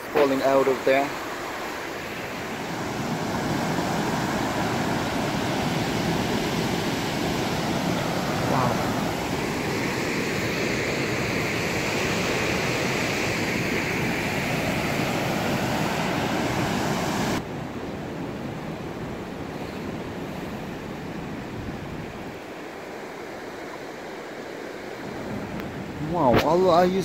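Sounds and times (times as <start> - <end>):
floodwater rushing: 0.0 - 17.4.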